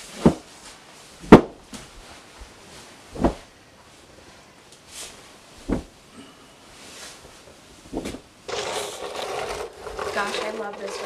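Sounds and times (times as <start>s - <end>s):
rug dropping onto wooden floor: 1.2s - 1.9s, 5.6s - 5.9s.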